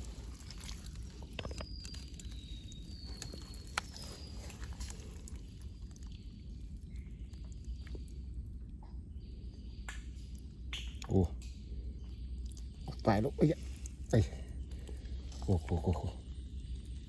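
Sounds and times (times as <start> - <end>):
wet mud squelching: 0.0 - 6.2.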